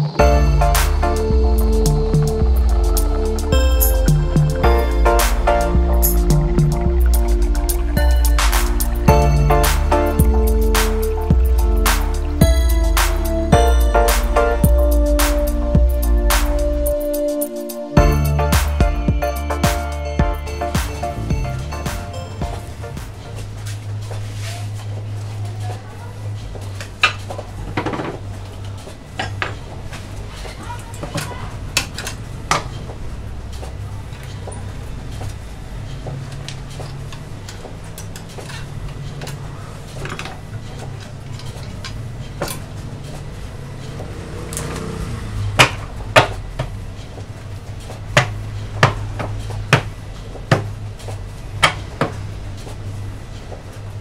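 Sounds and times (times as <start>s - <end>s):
steady low hum: 0.0s - 30.3s.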